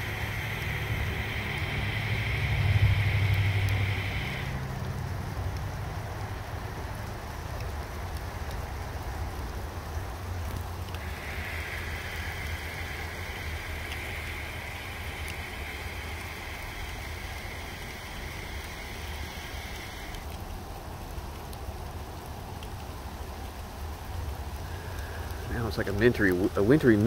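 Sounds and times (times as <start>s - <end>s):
high-pitched hiss: 0.0s - 5.2s, 10.7s - 20.6s, 24.4s - 27.0s
low rumble: 0.0s - 6.4s
sleet and rain pattering: 0.0s - 27.0s.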